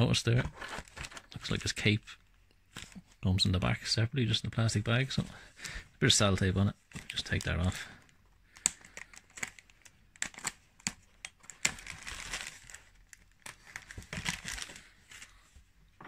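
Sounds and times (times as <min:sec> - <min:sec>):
plastic bag crinkling: 0:08.5 - 0:15.3.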